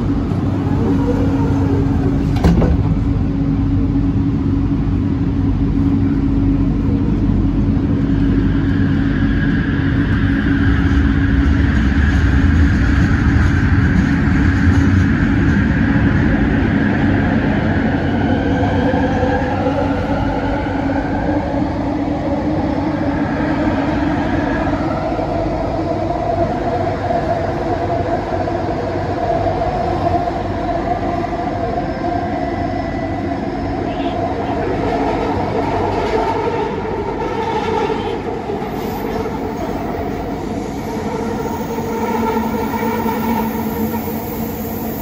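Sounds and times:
train interior rumble: 0:00.0 - 0:45.0.

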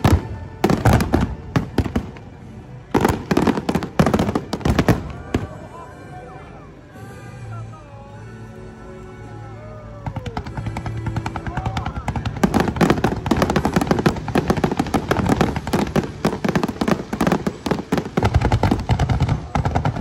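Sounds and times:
fireworks launching and bursting: 0:00.0 - 0:05.7, 0:10.0 - 0:20.0
faint show music: 0:00.0 - 0:20.0.

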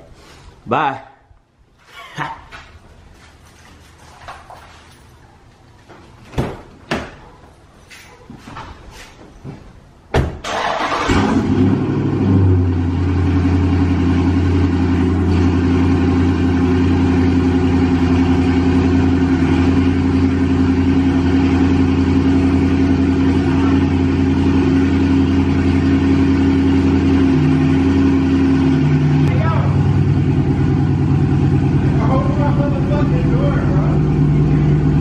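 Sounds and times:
car door shutting: 0:10.1 - 0:10.5
car engine starting and idling: 0:10.1 - 0:35.0.

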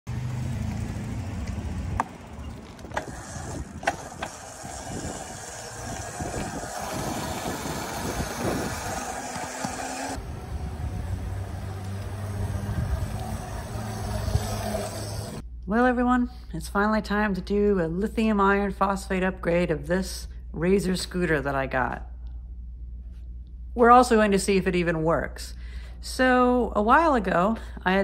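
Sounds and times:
electric scooter motor and tyres: 0:00.1 - 0:15.4
wind on microphone: 0:02.6 - 0:15.4.

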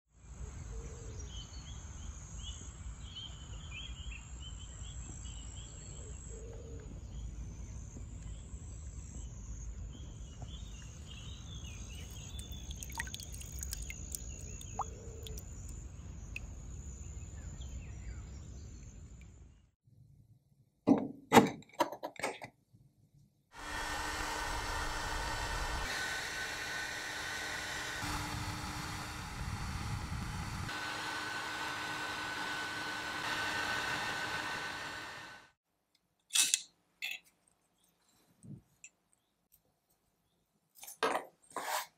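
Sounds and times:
birds chirping: 0:00.5 - 0:19.6
mechanical hum with droning tone: 0:23.6 - 0:35.5
wind rumble: 0:28.2 - 0:30.7.

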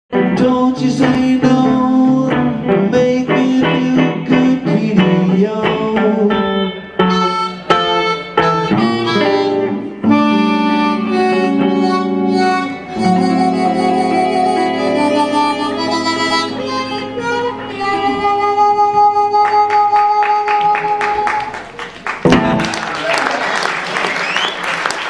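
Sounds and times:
electric guitar chords: 0:00.1 - 0:22.9
harmonica long notes: 0:06.3 - 0:21.6.

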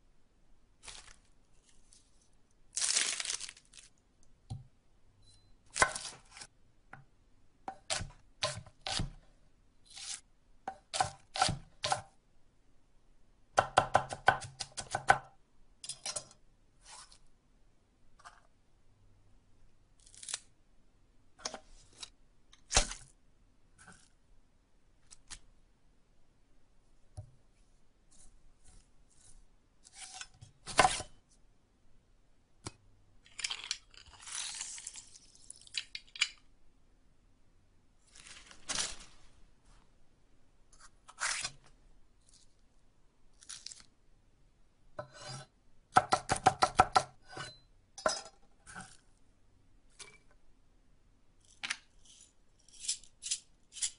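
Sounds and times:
rustling: 0:00.8 - 0:03.9, 0:38.0 - 0:39.9.

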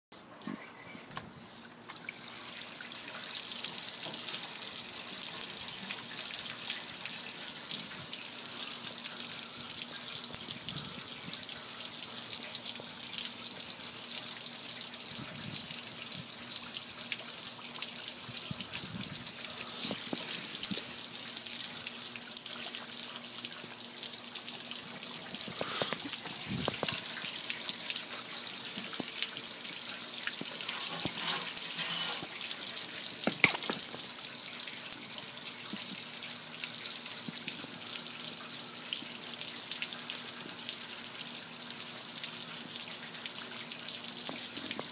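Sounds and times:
hose water spraying on metal grill: 0:19.6 - 0:20.9, 0:25.4 - 0:27.4, 0:30.4 - 0:34.0.

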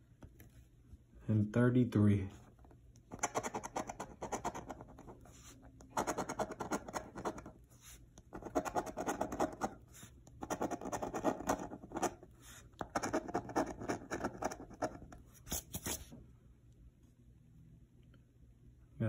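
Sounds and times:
coin scratching lottery ticket: 0:03.1 - 0:05.2, 0:05.9 - 0:07.5, 0:08.3 - 0:09.8, 0:10.4 - 0:15.9.

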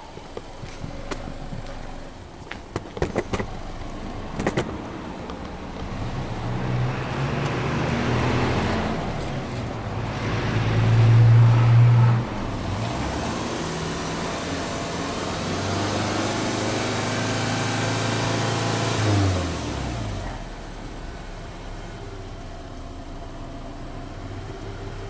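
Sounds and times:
car engine revving: 0:03.2 - 0:22.4.

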